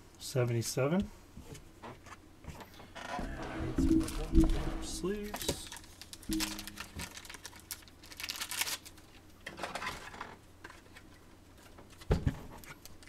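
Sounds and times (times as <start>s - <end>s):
plastic card sleeves rustling: 4.0s - 9.1s.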